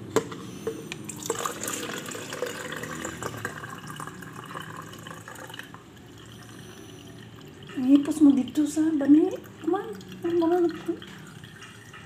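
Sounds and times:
syrup pouring into plastic pitcher: 0.6 - 8.8.

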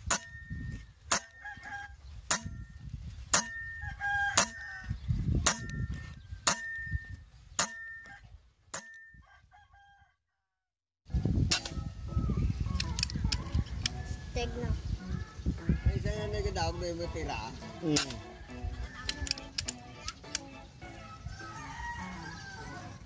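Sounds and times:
roosters crowing: 1.1 - 2.4, 3.4 - 5.3, 9.1 - 10.2, 15.6 - 20.0, 20.8 - 23.0
sharp clicks: 12.7 - 14.0, 19.0 - 20.6.

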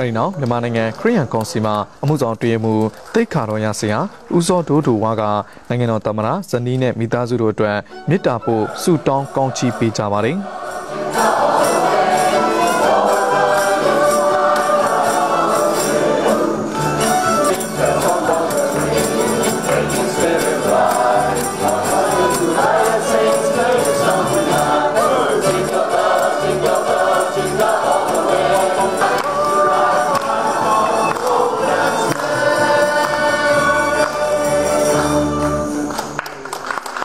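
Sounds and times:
choir singing a carol: 8.3 - 36.2
light percussion rhythm: 10.4 - 36.2.

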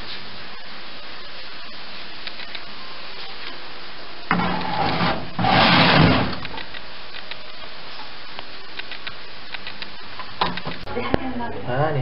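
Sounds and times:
metal tray scraping: 4.3 - 6.6.

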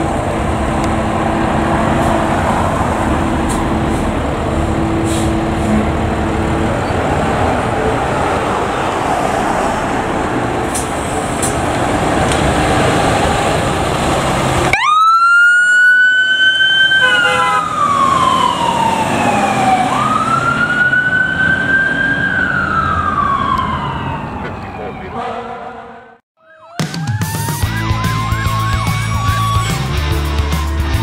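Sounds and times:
fire engine rumbling: 0.0 - 26.2
siren wailing: 14.7 - 29.9.

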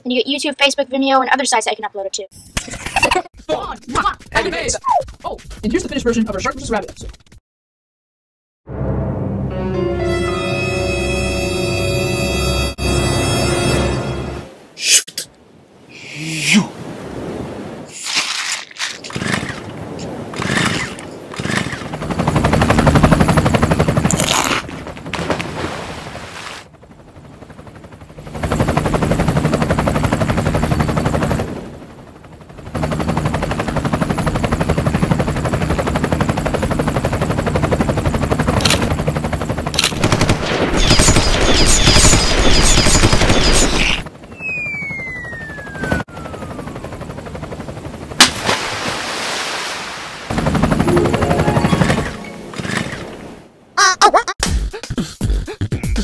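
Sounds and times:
cartoon helicopter rotor chopping: 2.9 - 7.4, 18.8 - 25.4, 32.5 - 48.4, 50.3 - 53.2
falling whistle: 44.3 - 46.7.

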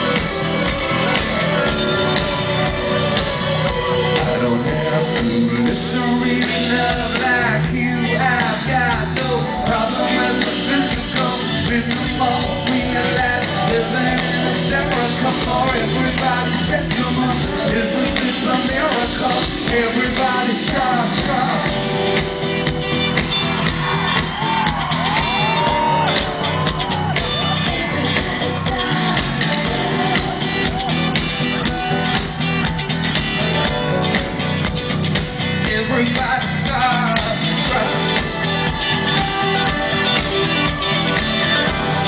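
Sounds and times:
live pop-rock band playing: 0.0 - 42.0
male lead vocal: 3.1 - 22.6, 27.4 - 31.1, 35.5 - 42.0.

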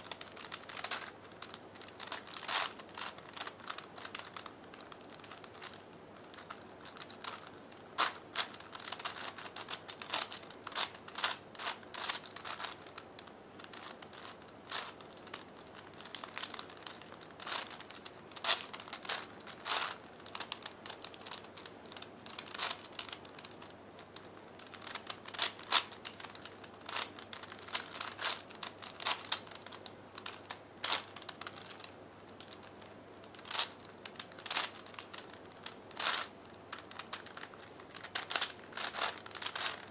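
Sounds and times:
plastic puzzle clicking: 0.1 - 39.9.

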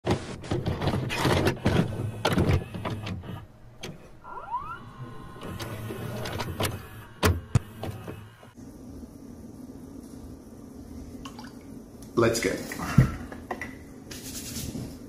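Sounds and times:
tape mechanism clicks and clunks: 0.1 - 8.6
short rising whir: 4.0 - 8.6.

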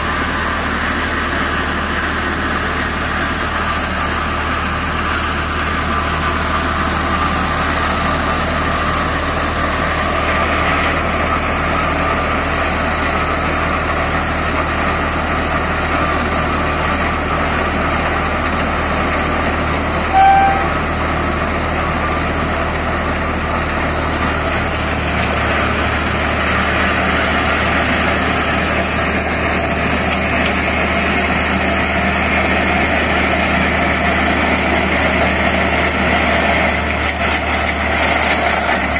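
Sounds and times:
flail mulcher shredding brush: 0.0 - 38.9
tractor diesel engine running: 0.0 - 38.9
brief high chirp: 20.1 - 20.8.

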